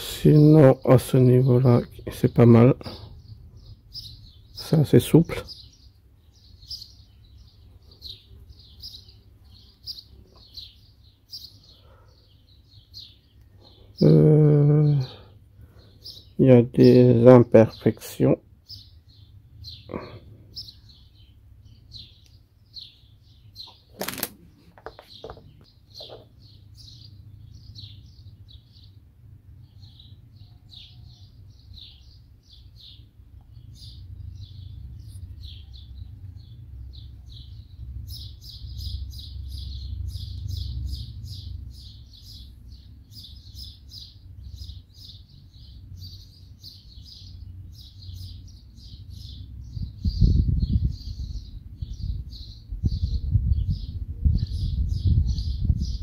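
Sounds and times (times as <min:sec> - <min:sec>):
birds chirping: 0:00.0 - 0:56.0
sharp clicks: 0:23.7 - 0:26.2.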